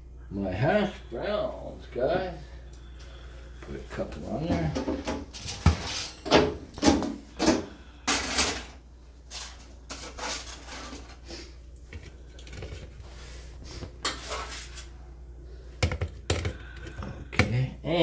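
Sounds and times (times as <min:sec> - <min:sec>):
utensil scraping food off foil: 0:09.2 - 0:11.5, 0:14.0 - 0:14.9.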